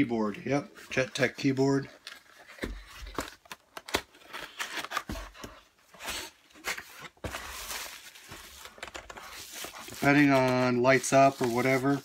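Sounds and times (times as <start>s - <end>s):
bubble wrap rustling: 7.2s - 12.0s.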